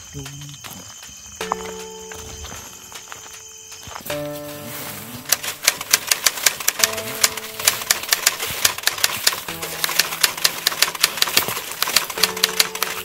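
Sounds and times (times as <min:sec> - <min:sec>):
background music with held notes: 0:00.0 - 0:13.0
typewriter key clicks: 0:05.3 - 0:13.0.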